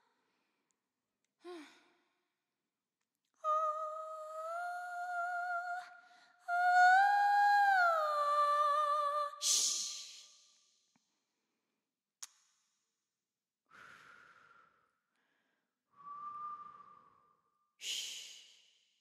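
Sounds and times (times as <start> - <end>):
woman singing without words: 3.4 - 9.9.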